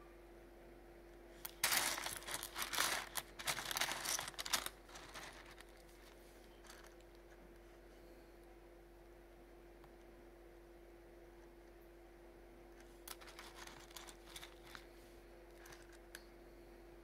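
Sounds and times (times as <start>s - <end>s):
faint steady hum: 0.0s - 17.0s
bubble wrap crinkling: 1.5s - 7.3s, 13.1s - 14.9s.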